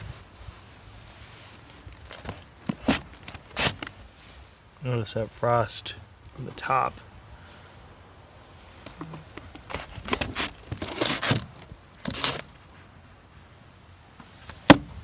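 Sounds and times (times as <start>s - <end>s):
rustling and scraping of box lid: 1.5s - 4.2s, 8.8s - 12.6s.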